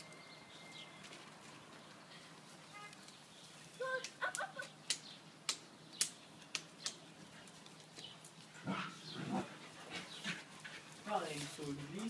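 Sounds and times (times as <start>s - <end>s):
sharp clicks: 4.0s - 7.0s.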